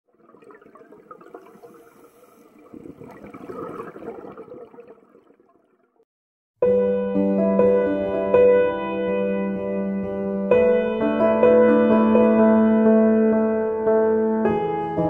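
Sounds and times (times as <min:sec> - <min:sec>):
water bubbling and rushing: 0:00.0 - 0:06.0.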